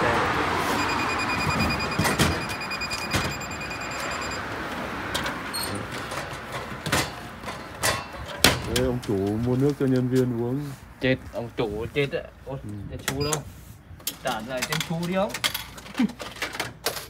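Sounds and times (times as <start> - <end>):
vending machine beep: 0.8 - 4.5, 13.2 - 13.4.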